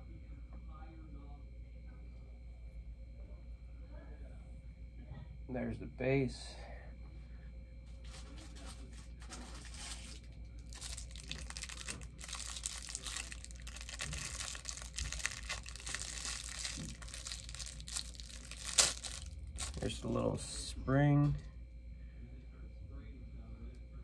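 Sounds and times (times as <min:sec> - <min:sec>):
plastic packaging crinkling and tearing: 0:09.2 - 0:20.1.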